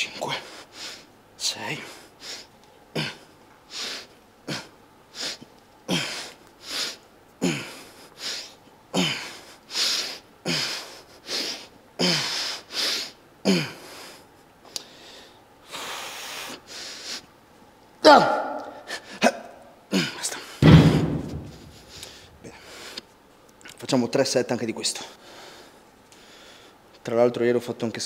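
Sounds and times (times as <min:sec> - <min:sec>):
man breathing forcefully: 0:02.0 - 0:14.2, 0:19.9 - 0:23.0
man grunting: 0:18.0 - 0:20.4.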